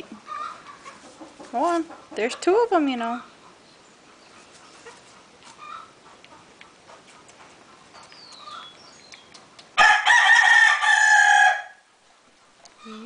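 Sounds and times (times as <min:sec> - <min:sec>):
faint clicks: 0:09.1 - 0:09.7
rooster crowing: 0:09.8 - 0:11.9.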